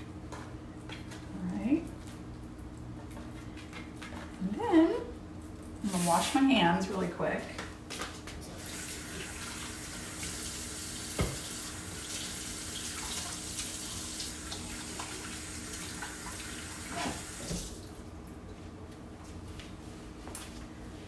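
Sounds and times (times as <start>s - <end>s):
faucet running: 8.6s - 17.9s.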